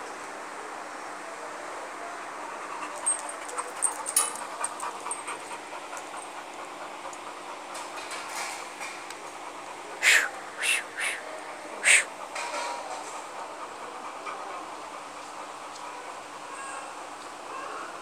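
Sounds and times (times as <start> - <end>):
dog panting: 2.2 - 16.5
metal chain leash clinking: 2.9 - 5.6.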